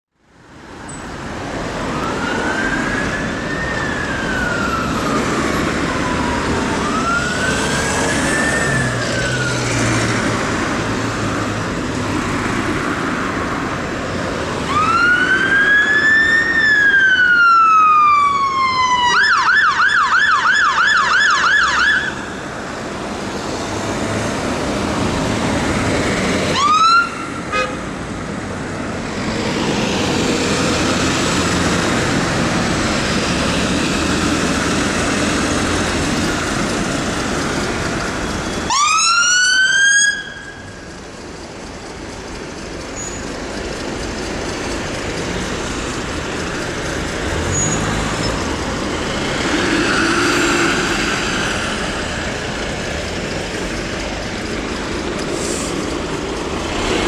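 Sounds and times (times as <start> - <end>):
road traffic: 0.1 - 57.0
fire engine siren: 1.6 - 11.8, 14.5 - 23.2, 24.6 - 27.8, 29.7 - 41.7, 45.5 - 52.7.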